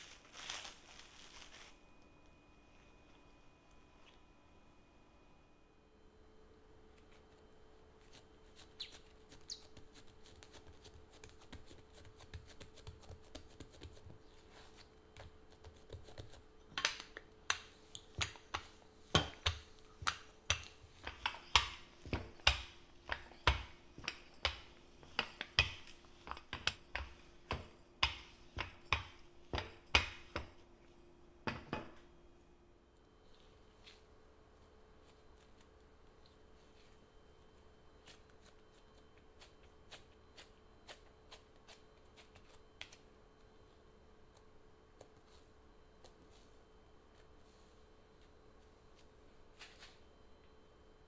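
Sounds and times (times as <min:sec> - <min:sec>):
faint steady hum: 0:00.0 - 0:51.0
hand patting dough: 0:08.1 - 0:30.7.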